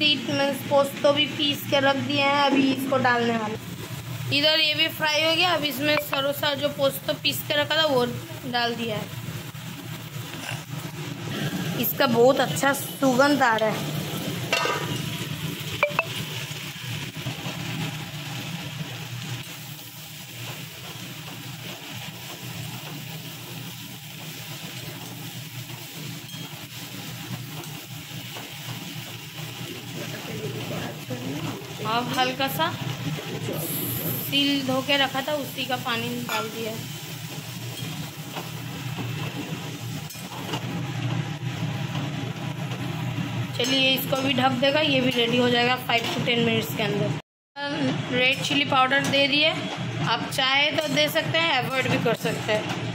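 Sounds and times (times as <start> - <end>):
vegetables sizzling in a wok: 0.0 - 52.9.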